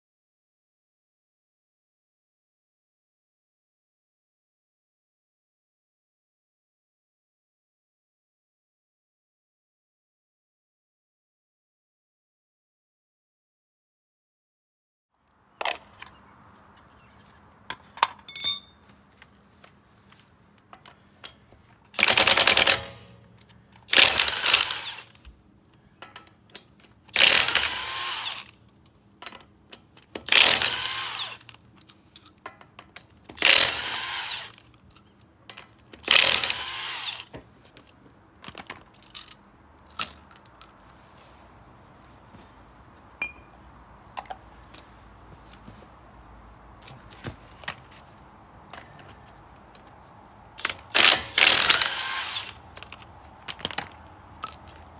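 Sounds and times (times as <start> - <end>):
impact wrench bursts: 22.0 - 23.1, 23.9 - 25.2, 27.2 - 28.5, 30.3 - 31.5, 33.4 - 34.6, 36.1 - 37.3, 50.6 - 52.6
small metal clicks and knocks: 25.2 - 27.2, 28.6 - 30.3, 31.4 - 33.4, 52.7 - 54.9.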